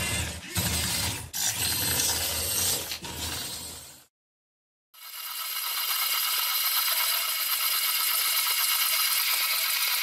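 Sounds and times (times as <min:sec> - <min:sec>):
model engine whirring and clattering: 0:05.0 - 0:10.0.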